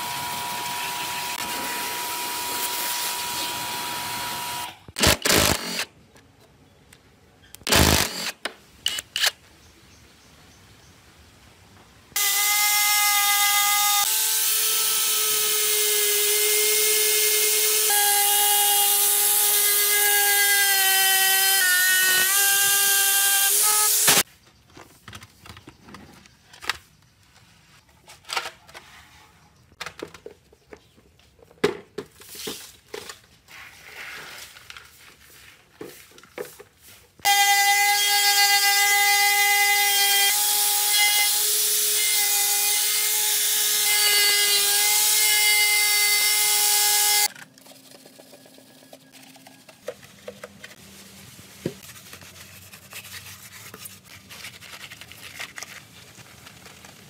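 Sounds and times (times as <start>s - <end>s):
angle grinder whining: 0.0s - 5.8s, 37.3s - 47.3s
hand work clicks and scraping: 46.9s - 50.8s.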